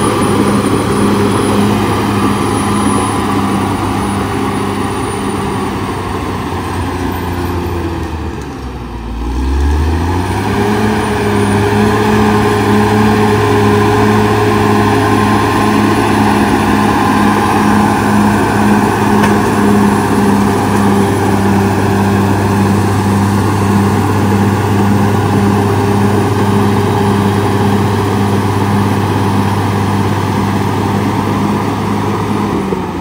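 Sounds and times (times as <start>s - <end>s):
bulldozer diesel engine under load: 0.0s - 33.0s.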